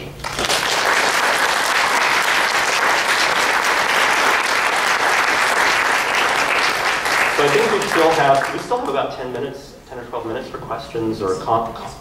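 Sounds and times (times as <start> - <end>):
audience applauding: 0.2 - 9.0.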